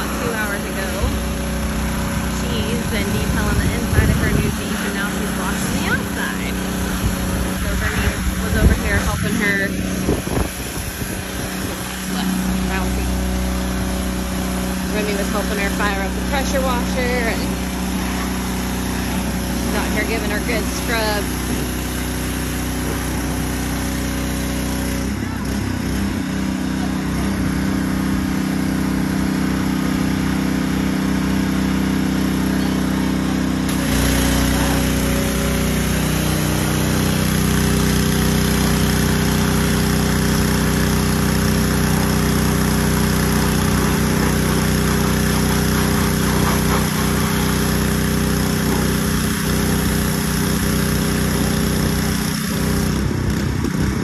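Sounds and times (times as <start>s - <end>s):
pressure washer engine running: 0.0s - 54.0s
water spraying hiss: 33.7s - 52.8s.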